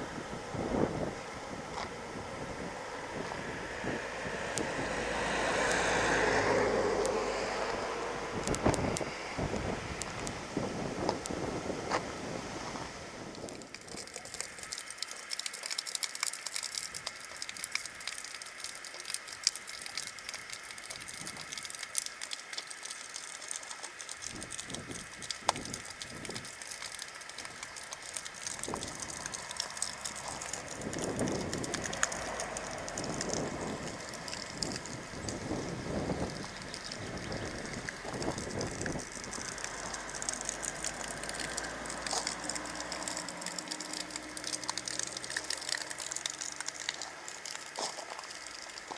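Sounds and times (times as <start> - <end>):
water trickling onto wooden boards: 0.0 - 48.9
car passing: 2.0 - 10.6, 29.0 - 38.0, 39.0 - 48.9.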